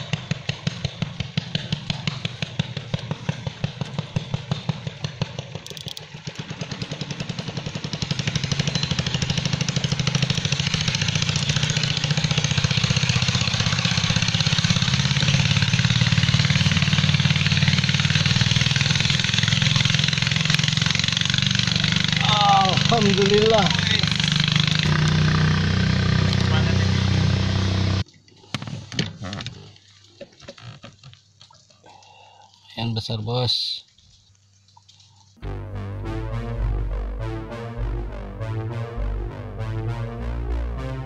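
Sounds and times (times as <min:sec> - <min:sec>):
small engine running: 0:00.0 - 0:28.0.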